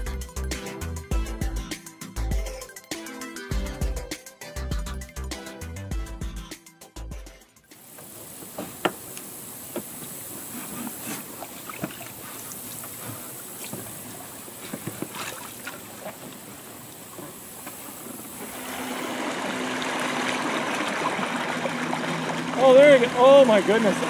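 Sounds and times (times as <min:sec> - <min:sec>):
rush of water: 0:07.8 - 0:24.0
trolling motor humming: 0:07.8 - 0:24.0
water sloshing: 0:07.9 - 0:24.0.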